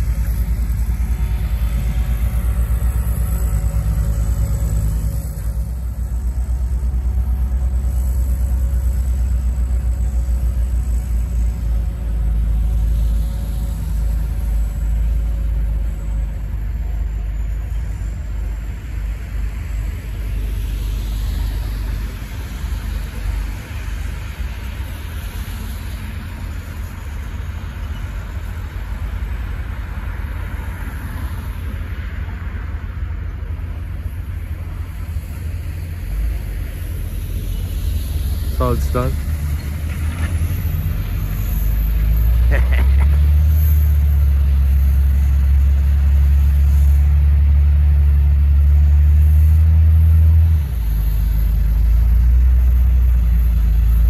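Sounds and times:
tyres hissing on wet road: 0.0s - 54.0s
snow blower engine rumble: 34.2s - 54.0s.

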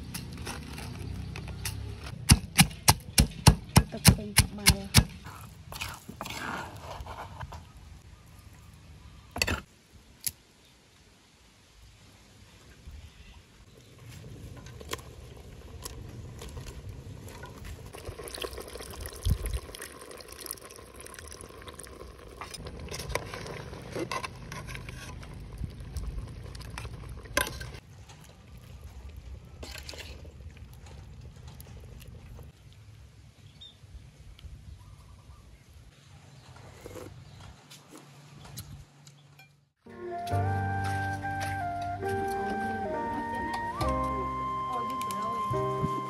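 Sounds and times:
water pouring and splashing: 14.0s - 32.9s.

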